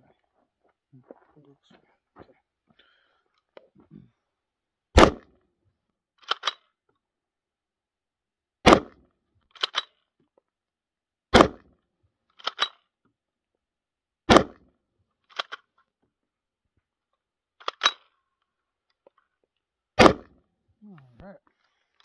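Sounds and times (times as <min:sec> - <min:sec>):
rifle shots: 0:05.0 - 0:05.3, 0:08.6 - 0:09.0, 0:11.3 - 0:11.7, 0:14.3 - 0:14.6, 0:20.0 - 0:20.4
rifle bolt clacking: 0:06.2 - 0:06.6.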